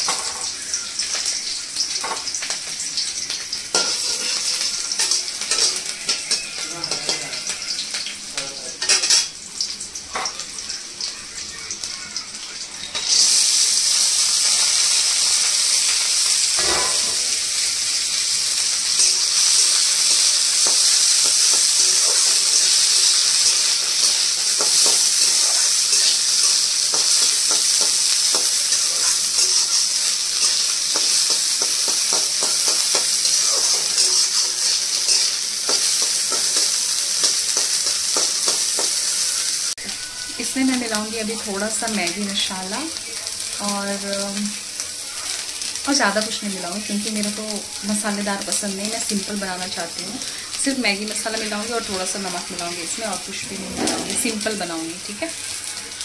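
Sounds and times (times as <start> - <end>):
food sizzling in hot oil: 0.0 - 56.0
spatula stirring and scraping: 20.6 - 39.0.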